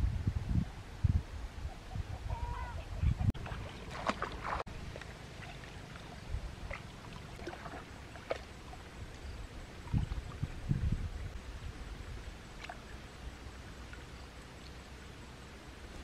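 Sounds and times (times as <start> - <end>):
stream water splashing and trickling: 3.3 - 16.0.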